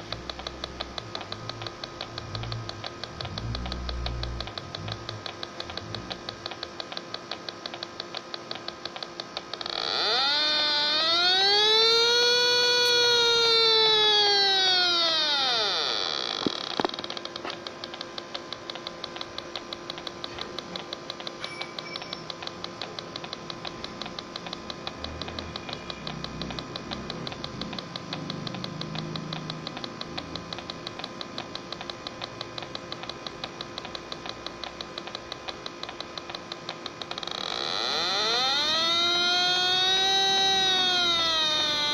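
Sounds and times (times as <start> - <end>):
electronic hum: 0.0 - 41.9
leak detector ticking: 0.0 - 41.9.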